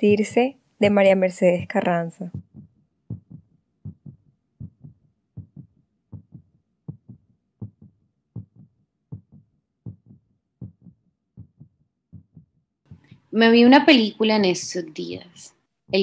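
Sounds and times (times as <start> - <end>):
heartbeat thumps: 0.8 - 13.2.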